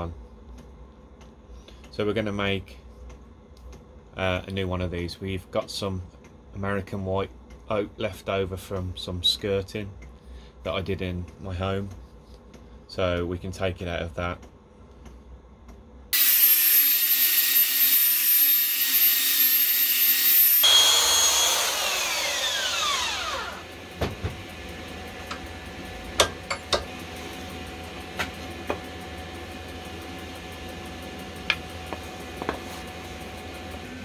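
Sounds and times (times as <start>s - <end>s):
power tool whining: 16.2s - 24.7s.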